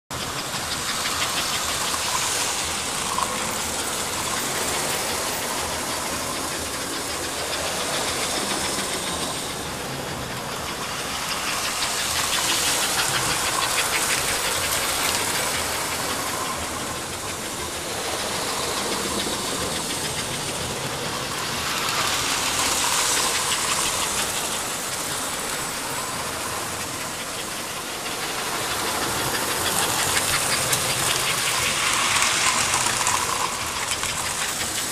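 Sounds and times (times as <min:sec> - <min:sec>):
toy trains clattering on track: 0:00.1 - 0:34.9.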